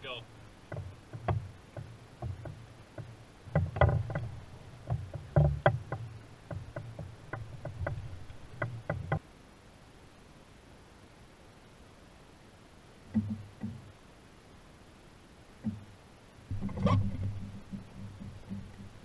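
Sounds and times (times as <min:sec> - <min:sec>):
knocks on canoe hull: 0:00.7 - 0:09.2, 0:13.1 - 0:13.8, 0:16.5 - 0:19.0.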